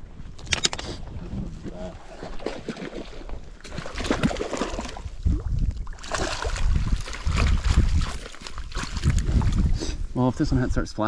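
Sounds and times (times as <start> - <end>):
wind buffeting microphone: 0.0 - 2.5, 3.4 - 11.0
fish splashing in water: 2.1 - 5.2, 5.8 - 9.6.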